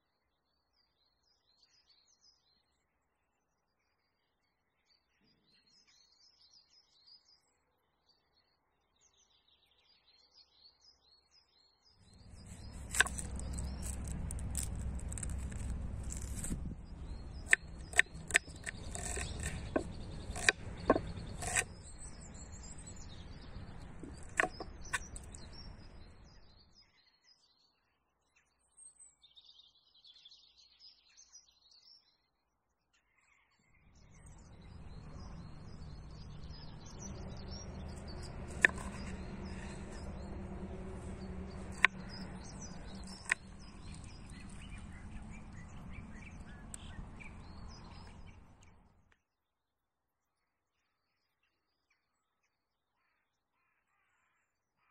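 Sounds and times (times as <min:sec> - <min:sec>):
small birds chirping: 0:12.1 - 0:26.6, 0:34.0 - 0:48.8
knife chopping on wooden board: 0:12.2 - 0:26.1, 0:34.7 - 0:48.3.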